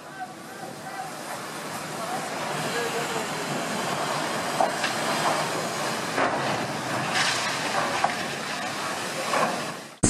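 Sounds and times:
sharp cracks and bangs: 0:06.1 - 0:10.0.

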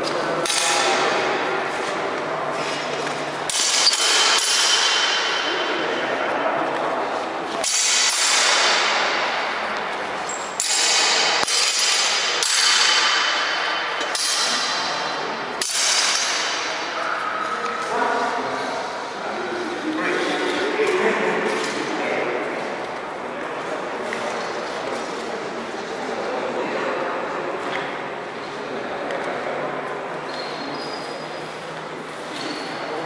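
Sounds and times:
swords clashing: 0:00.4 - 0:02.0, 0:02.6 - 0:05.8, 0:07.6 - 0:17.0.

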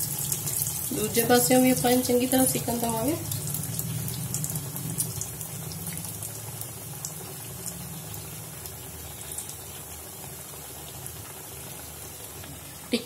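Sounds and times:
food deep-frying in oil: 0:00.0 - 0:13.0.

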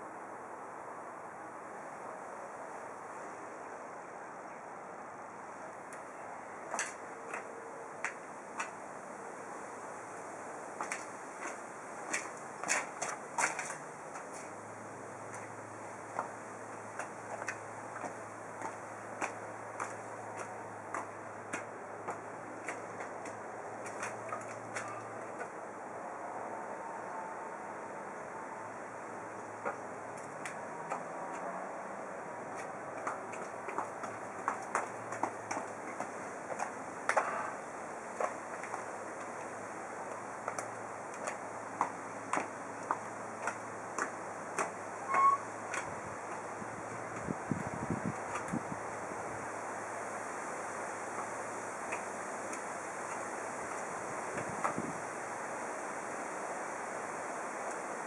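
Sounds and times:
background hiss: 0:00.0 - 0:58.0
high heels on concrete: 0:10.8 - 0:25.6, 0:29.6 - 0:48.7.

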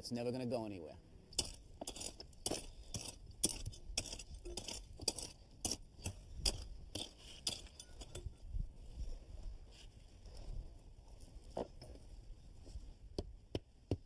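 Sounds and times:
gravelly scraping: 0:01.3 - 0:13.0
bricks clinking together: 0:01.4 - 0:08.4.

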